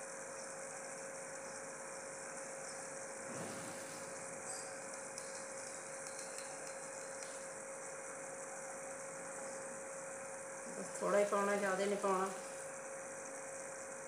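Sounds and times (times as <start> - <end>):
syrup boiling and bubbling: 0.0 - 10.9.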